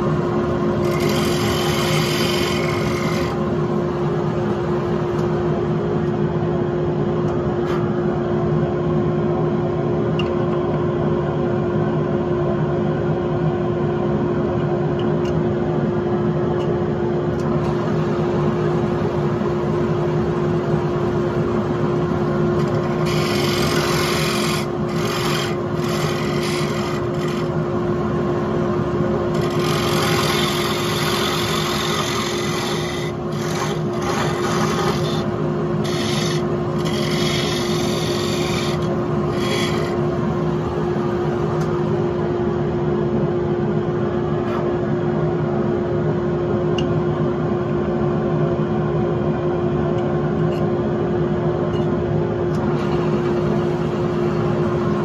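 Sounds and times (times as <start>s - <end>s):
wood lathe motor hum: 0.0s - 5.4s, 17.6s - 41.8s
turning tool scraping wood: 0.8s - 3.4s, 22.6s - 27.6s, 29.3s - 40.1s.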